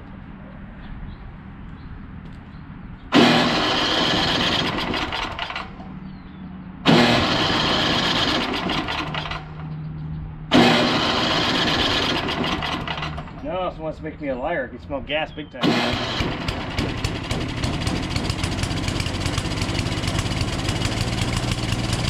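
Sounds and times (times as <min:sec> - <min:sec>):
electric starter cranking engine: 0:03.1 - 0:05.9, 0:06.9 - 0:09.7, 0:10.5 - 0:13.5, 0:15.6 - 0:22.0.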